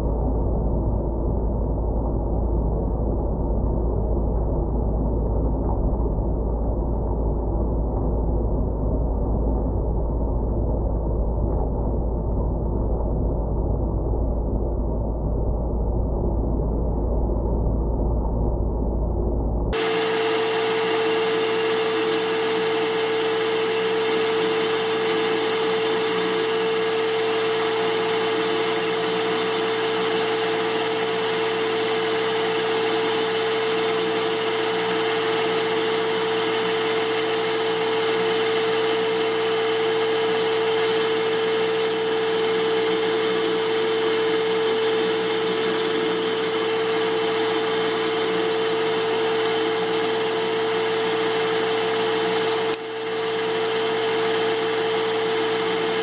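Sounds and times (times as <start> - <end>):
metal lathe cutting: 19.8 - 56.0.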